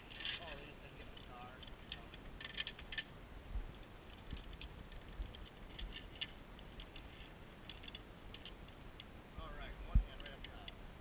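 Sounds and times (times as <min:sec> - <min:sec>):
carabiners clinking and jingling: 0:00.0 - 0:03.1, 0:03.8 - 0:09.1.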